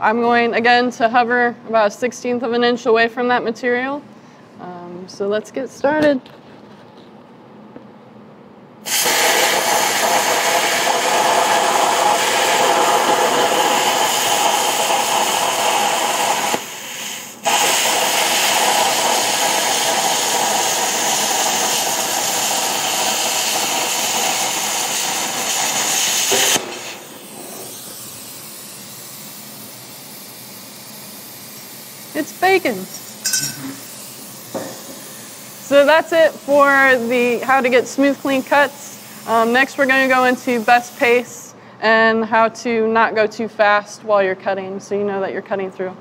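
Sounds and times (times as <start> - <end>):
plasma torch hissing: 8.8 - 41.4.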